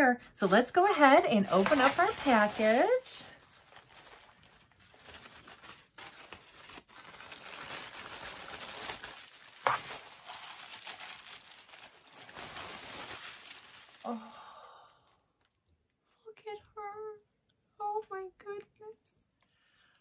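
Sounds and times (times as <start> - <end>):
plastic wrapping crinkling: 0.4 - 15.6
package being torn open: 1.5 - 14.2.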